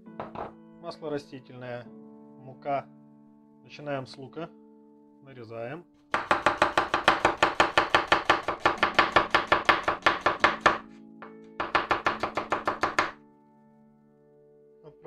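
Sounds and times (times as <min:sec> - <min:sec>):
faint background music: 0:00.0 - 0:15.0
knife chopping onion on board: 0:06.2 - 0:10.8, 0:11.6 - 0:13.2.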